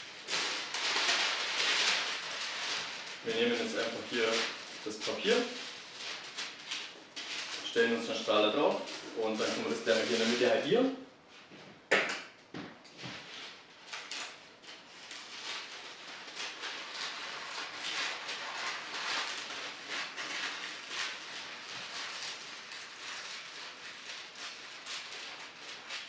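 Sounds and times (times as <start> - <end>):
paper being cut and crackling: 0.0 - 7.7, 13.9 - 26.0.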